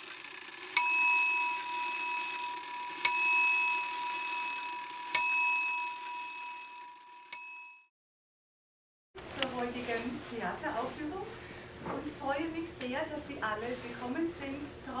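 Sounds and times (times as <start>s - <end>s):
bell ringing: 0.7s - 7.9s.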